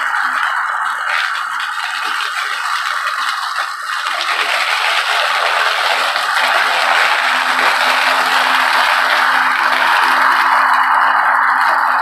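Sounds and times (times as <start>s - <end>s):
electric lawn mower cutting grass: 0.0s - 12.0s.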